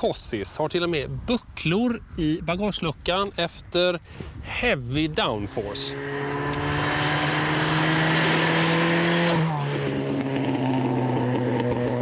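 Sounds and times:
wind and tyre noise: 0.0 - 12.0
car engine at high revs: 4.8 - 12.0.

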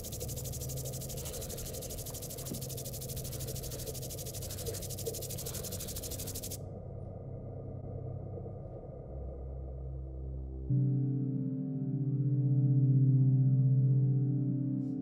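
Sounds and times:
rapidly pulsing high buzz: 0.0 - 6.7
steady low hum: 0.0 - 14.3.

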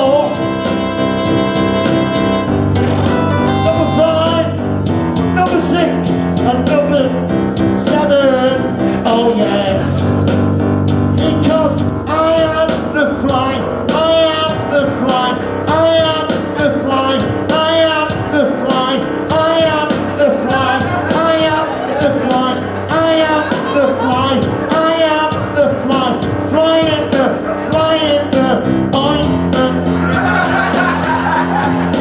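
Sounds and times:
man singing into microphone: 0.0 - 0.6, 3.6 - 4.6, 5.4 - 10.2, 11.2 - 30.3
guitar backing: 0.0 - 32.0.

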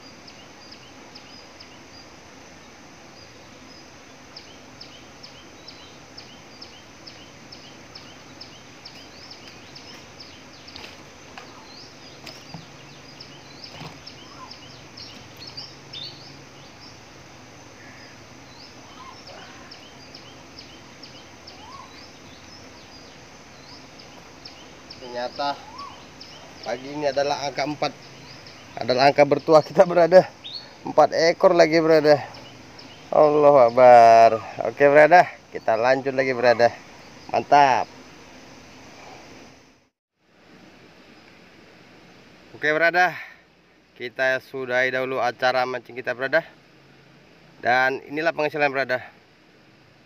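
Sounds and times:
outdoor background noise: 0.0 - 50.0.

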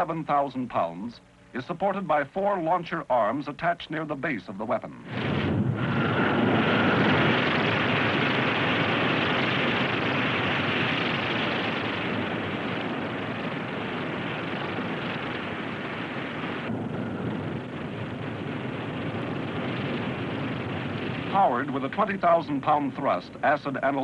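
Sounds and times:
rocket motor roaring: 5.0 - 24.0.

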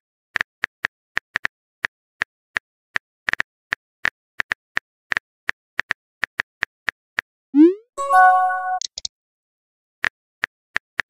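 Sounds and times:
rising message bloop: 7.6 - 9.0.

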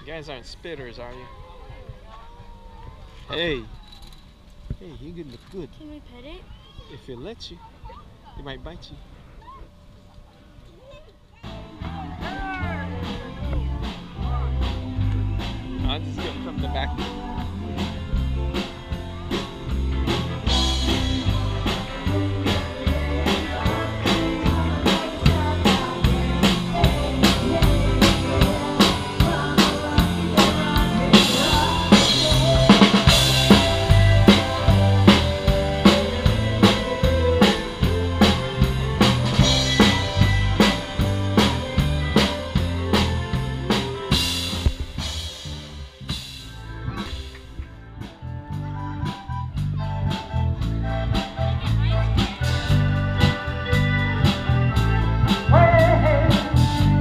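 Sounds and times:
bass and electric guitar: 11.4 - 57.0
drum kit beat: 11.5 - 57.0.

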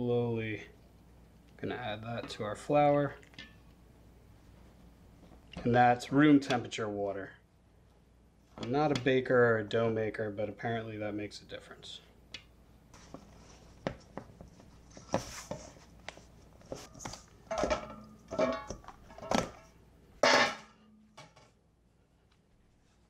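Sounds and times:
metal bowl clank: 17.5 - 21.4.

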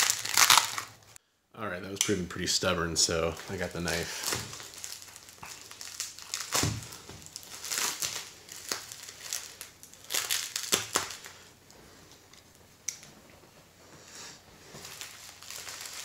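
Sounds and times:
bubble wrap crinkling: 0.0 - 1.2, 3.3 - 12.6, 14.6 - 16.0.

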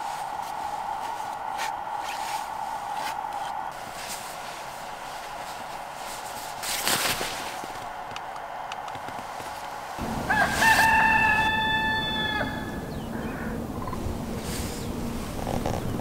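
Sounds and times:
blanket rustling: 0.0 - 8.1, 9.0 - 11.5, 14.2 - 16.0
faint steady hum: 0.0 - 16.0
rooster crowing: 7.9 - 13.7.

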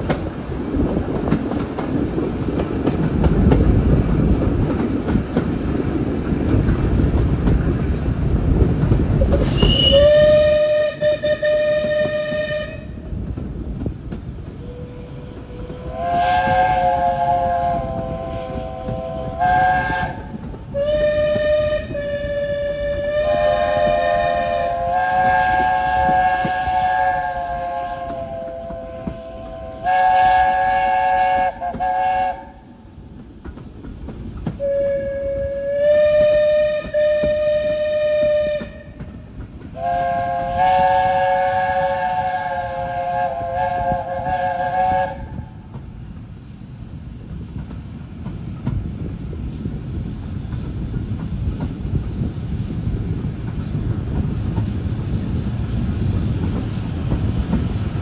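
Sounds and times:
steam locomotive chime whistle: 9.4 - 13.0, 14.6 - 32.6, 34.6 - 39.1, 39.7 - 45.6.

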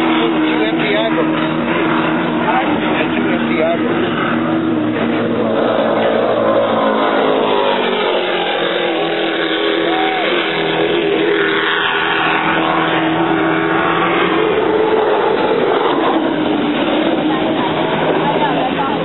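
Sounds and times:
powerboat engines droning: 0.0 - 19.0.

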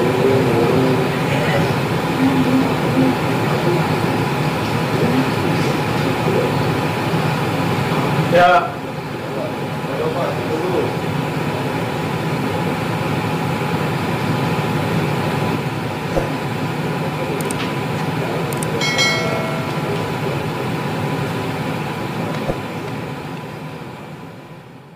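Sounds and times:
machinery hum and hiss: 0.0 - 24.9
short pitched tone: 18.8 - 20.7.

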